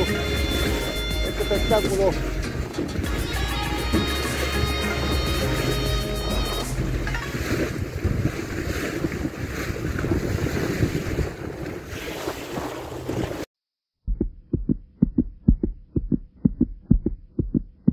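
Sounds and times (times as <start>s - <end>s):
rush of sea water: 0.0s - 13.5s
wind on microphone: 6.8s - 13.5s
pulsing heartbeat-like thump: 14.0s - 17.9s.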